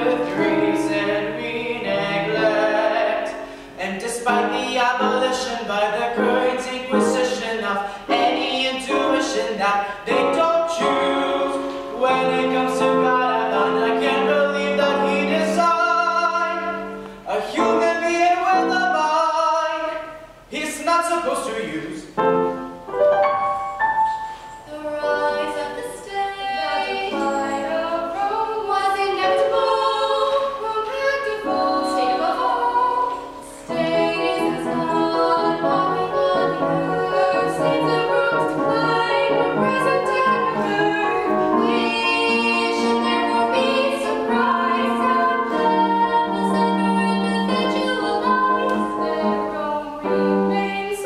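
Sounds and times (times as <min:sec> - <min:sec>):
stage cast singing together: 0:00.0 - 0:20.3, 0:24.0 - 0:51.0.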